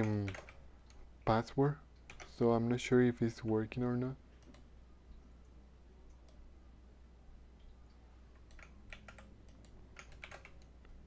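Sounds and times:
computer keyboard clicks: 0.0s - 1.0s, 2.1s - 2.3s, 8.4s - 10.8s
low steady hum: 0.0s - 11.0s.

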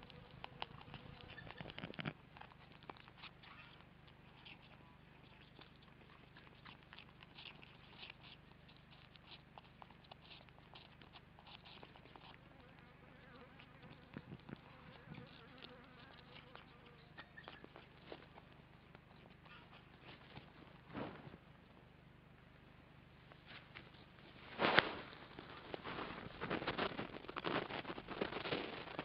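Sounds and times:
bird scratching and rustling in nest: 0.0s - 3.4s, 23.4s - 29.0s
low electrical hum: 0.0s - 29.0s.

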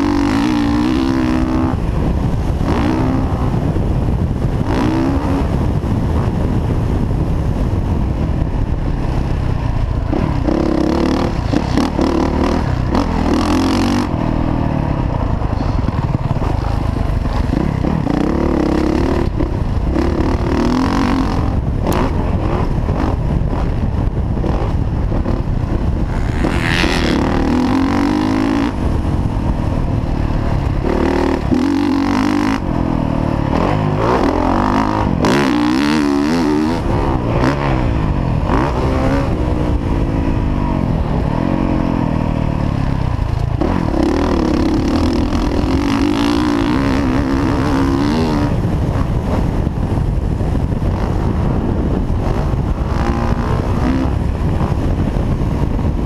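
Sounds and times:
dirt bike engine revving: 0.0s - 6.8s, 8.6s - 56.0s
wind on microphone: 0.0s - 56.0s.

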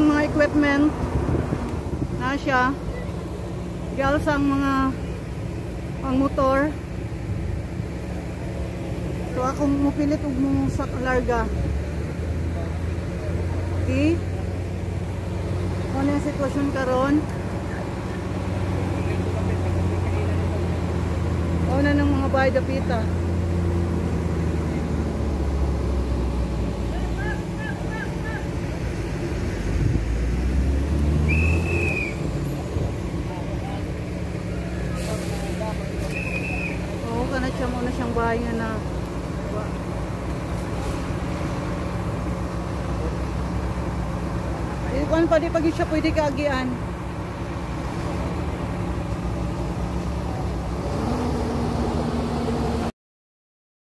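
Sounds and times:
diesel engine running: 0.0s - 52.9s
high whistle-like tone: 31.2s - 32.5s, 36.0s - 36.9s.

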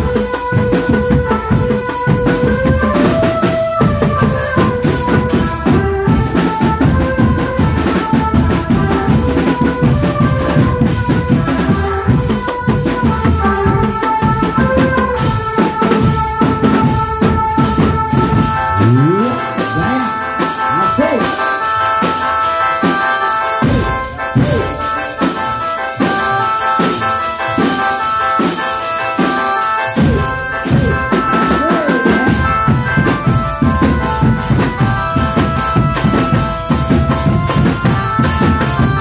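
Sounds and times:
marching drums beating: 0.0s - 22.2s, 30.0s - 39.0s
melody of held notes: 17.6s - 38.9s.

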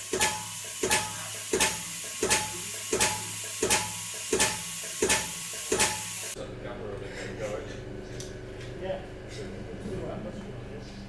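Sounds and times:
gas pump humming and hissing: 0.0s - 11.0s.

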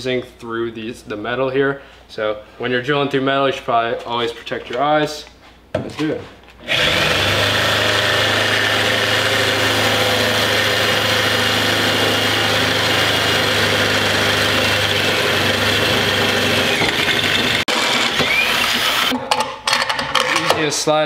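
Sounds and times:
electric drill boring through metal: 6.6s - 19.2s.

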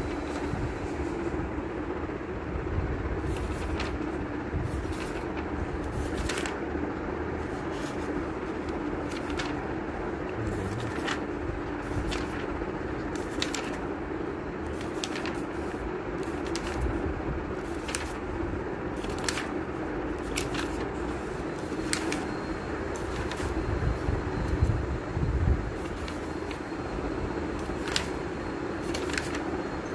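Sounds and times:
book pages turning: 3.2s - 6.6s, 7.5s - 14.0s, 14.6s - 18.4s, 19.0s - 22.4s, 23.0s - 23.6s, 25.7s - 26.7s, 27.6s - 28.2s, 28.8s - 29.5s.

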